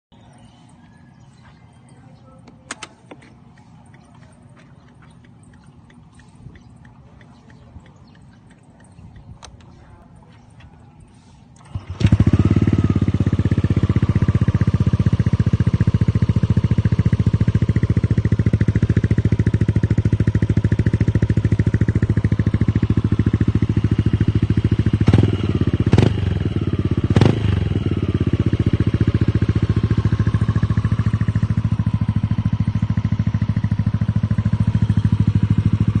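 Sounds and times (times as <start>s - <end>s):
scooter engine idling: 0.2s - 36.0s
throttle blips: 3.3s - 9.8s.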